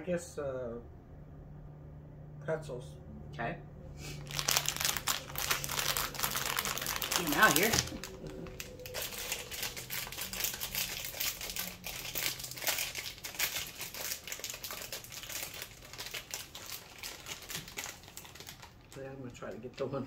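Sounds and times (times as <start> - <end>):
plastic snack bag crinkling: 4.2 - 19.9.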